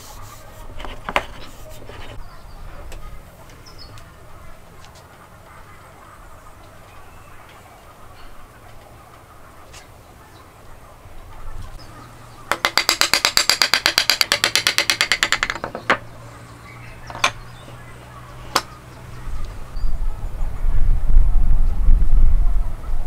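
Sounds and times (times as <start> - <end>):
wooden mallet knocks: 12.5 - 16.0.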